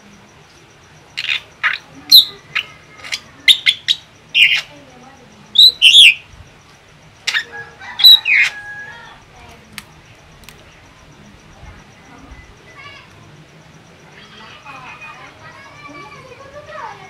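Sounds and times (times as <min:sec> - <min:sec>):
bird chirping and whistling: 0:01.2 - 0:04.7, 0:05.5 - 0:06.2, 0:07.3 - 0:08.6.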